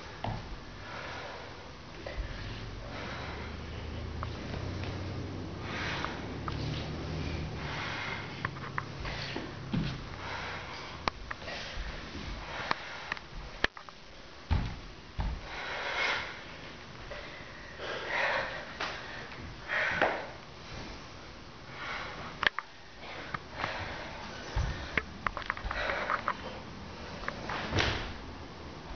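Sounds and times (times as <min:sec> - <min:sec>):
person breathing hard: 0:00.0 - 0:04.6, 0:05.5 - 0:13.6, 0:15.4 - 0:27.7
bare feet thumping wooden floor: 0:09.0 - 0:10.2, 0:14.5 - 0:15.5.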